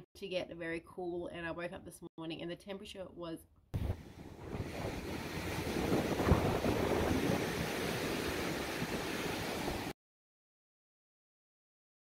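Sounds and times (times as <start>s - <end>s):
wind buffeting microphone: 3.8s - 9.9s
ocean surf washing onto beach: 3.8s - 10.0s.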